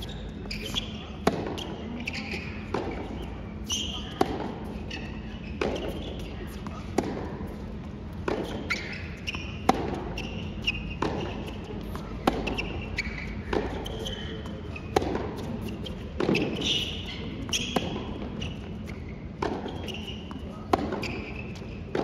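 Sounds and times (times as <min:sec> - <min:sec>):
shoe squeaks on court: 0:00.0 - 0:06.8, 0:08.2 - 0:22.0
tennis ball bouncing: 0:00.0 - 0:22.0
tennis ball racket strikes: 0:00.7 - 0:03.3, 0:04.1 - 0:07.5, 0:08.2 - 0:14.3, 0:14.9 - 0:16.9, 0:20.6 - 0:21.3.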